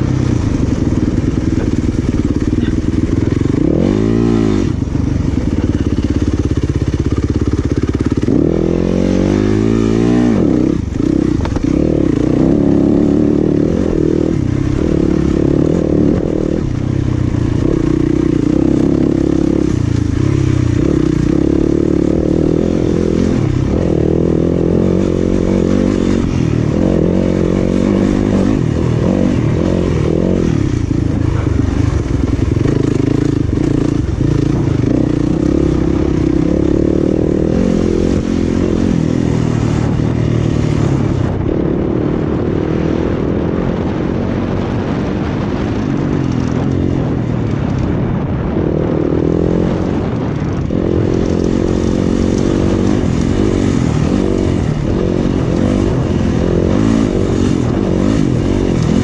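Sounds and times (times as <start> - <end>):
dirt bike engine revving: 0.0 - 59.0
rattle from bike: 50.2 - 59.0.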